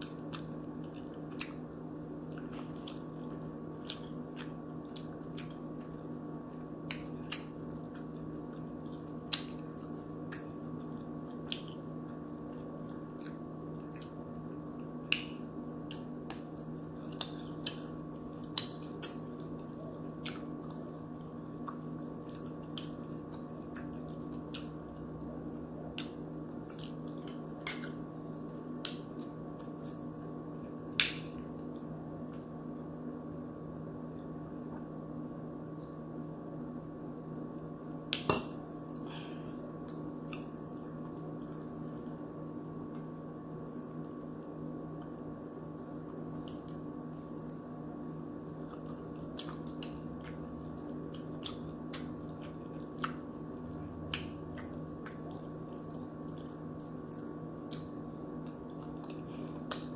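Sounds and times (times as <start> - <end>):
chewing clicks and mouth smacks: 0.0 - 6.0, 6.8 - 28.0, 28.8 - 30.2, 39.8 - 42.2, 43.7 - 59.9
steady low hum: 0.0 - 59.9.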